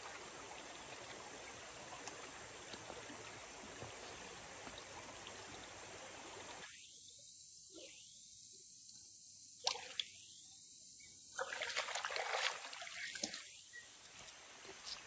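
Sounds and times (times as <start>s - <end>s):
stream flowing: 0.0s - 6.9s, 11.4s - 15.0s
water sloshing and splashing: 11.4s - 13.6s.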